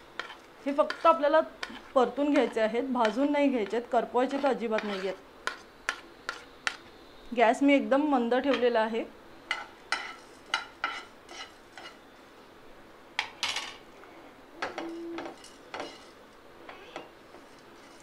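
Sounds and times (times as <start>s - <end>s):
spatula scraping seeds in pan: 0.0s - 6.9s, 9.5s - 12.0s, 14.8s - 16.2s, 17.3s - 18.0s.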